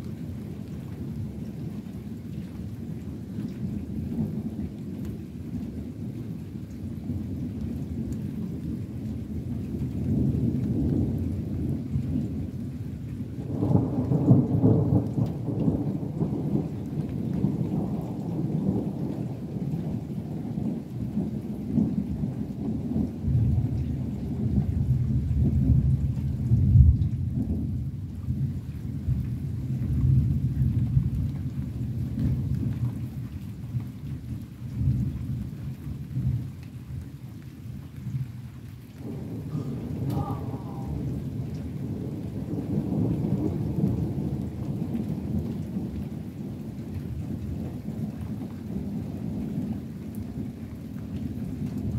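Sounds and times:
thunder rumbling: 0:07.0 - 0:33.1, 0:38.0 - 0:50.6.

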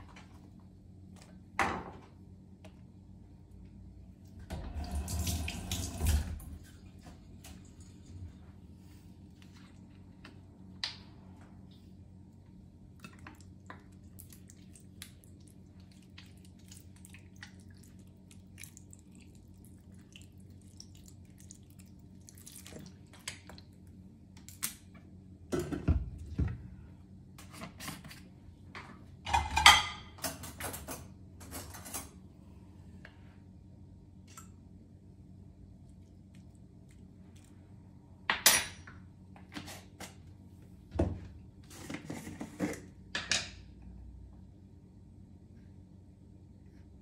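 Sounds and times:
clatter of pots and dishes: 0:29.3 - 0:32.2.

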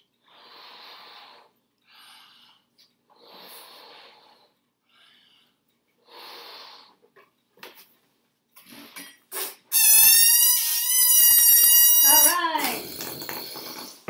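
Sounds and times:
person blowing up balloon: 0:08.7 - 0:14.0.

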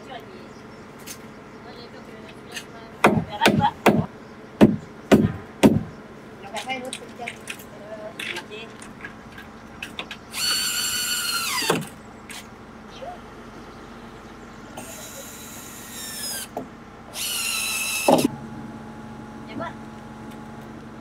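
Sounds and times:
cordless drill whining: 0:10.3 - 0:11.7, 0:14.8 - 0:18.3.

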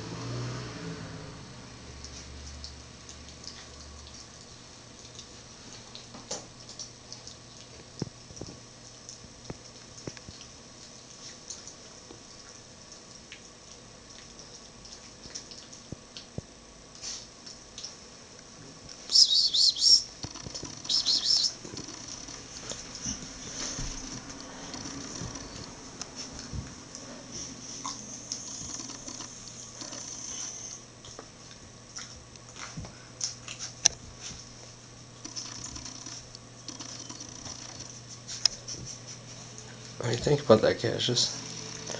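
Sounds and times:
puppy claws clicking and scuffling: 0:02.0 - 0:16.4, 0:17.0 - 0:18.0, 0:20.1 - 0:40.4.

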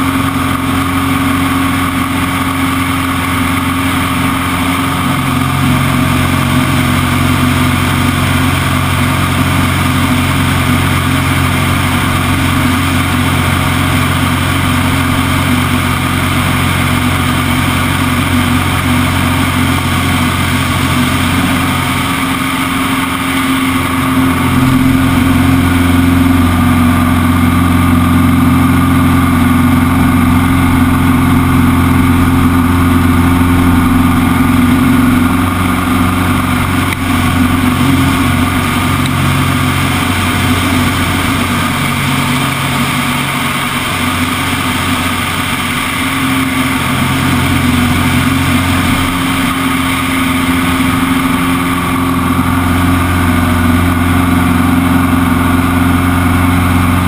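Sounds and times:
propeller aircraft engine running: 0:00.0 - 0:57.0.

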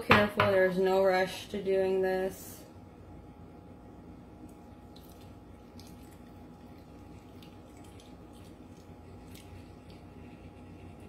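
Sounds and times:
low room hum: 0:00.0 - 0:11.0
liquid dripping through strainer: 0:04.4 - 0:11.0.

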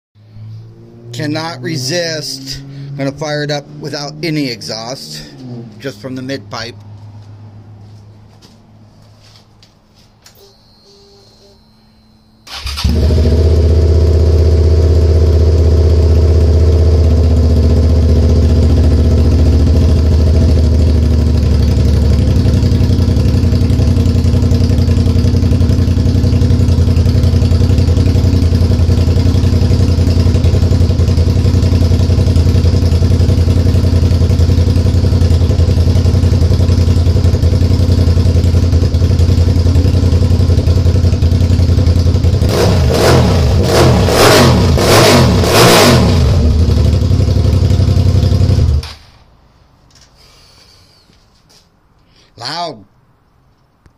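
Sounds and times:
motorcycle engine idling loud: 0:12.9 - 0:42.5, 0:46.2 - 0:48.8.

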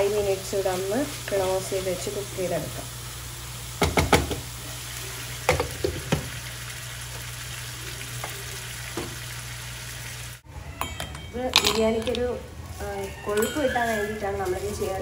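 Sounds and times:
chicken sizzling in oil: 0:00.0 - 0:10.5
utensil knocking against pan: 0:03.8 - 0:04.4.

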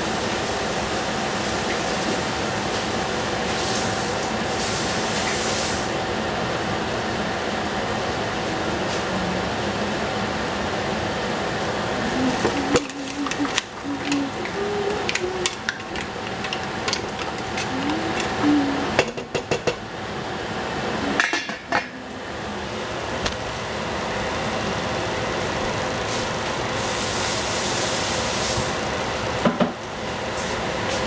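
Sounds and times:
kitchen appliance humming: 0:00.0 - 0:31.0
utensils clinking on dishes: 0:12.2 - 0:19.8, 0:21.2 - 0:22.0.

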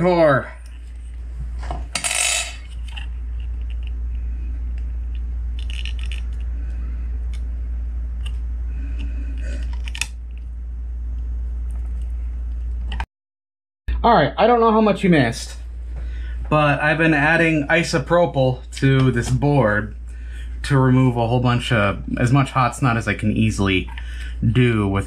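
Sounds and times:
steady low hum: 0:00.0 - 0:13.1, 0:13.9 - 0:25.0
metal tool clinking on workbench: 0:02.0 - 0:02.6.

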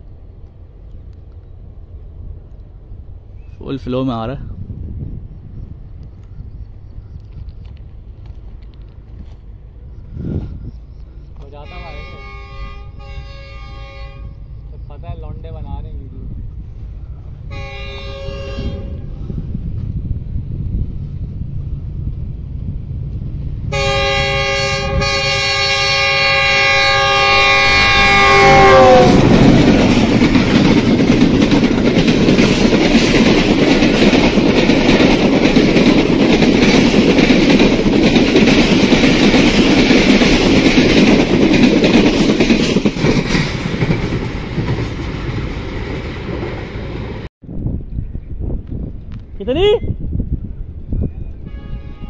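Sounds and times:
locomotive horn blast: 0:11.6 - 0:14.6, 0:17.5 - 0:19.2, 0:23.7 - 0:30.0, 0:51.4 - 0:52.0
train wheel clatter: 0:25.7 - 0:47.3.

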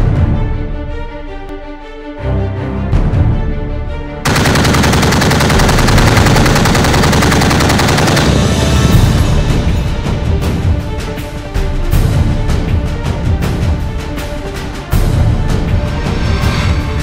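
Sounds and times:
music: 0:00.0 - 0:17.0
machine gun automatic fire: 0:04.3 - 0:09.0.

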